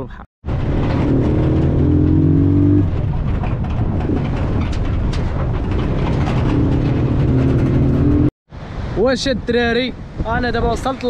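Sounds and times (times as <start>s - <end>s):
vehicle engine accelerating: 0.5s - 4.3s, 5.6s - 8.3s.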